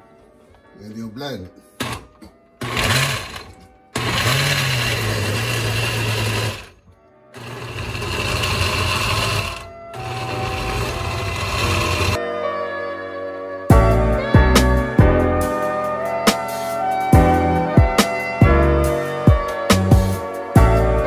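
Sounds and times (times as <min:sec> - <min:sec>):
blender motor grinding: 0:01.8 - 0:12.2.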